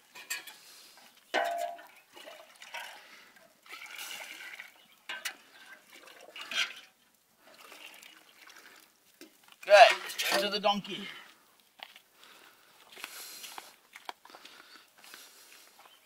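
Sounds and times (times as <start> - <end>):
water pouring into bucket: 1.8 - 10.4.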